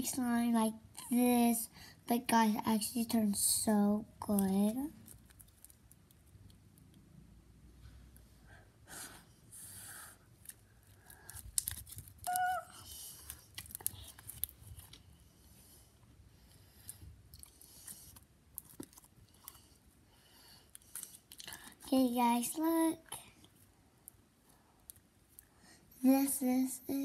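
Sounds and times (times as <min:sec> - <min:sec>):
slime crackling and popping: 0:04.2 - 0:06.6, 0:10.4 - 0:15.0.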